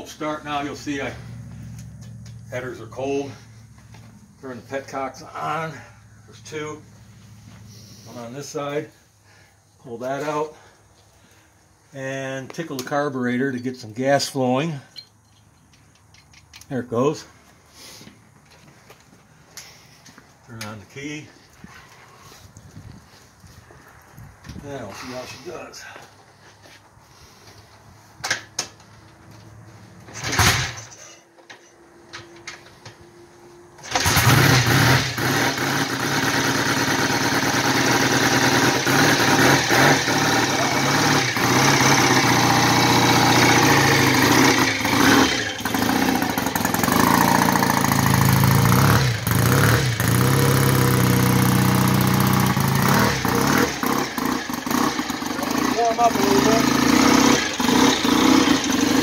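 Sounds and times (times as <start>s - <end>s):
motorcycle engine starting and running: 0.0s - 9.5s, 28.0s - 59.0s.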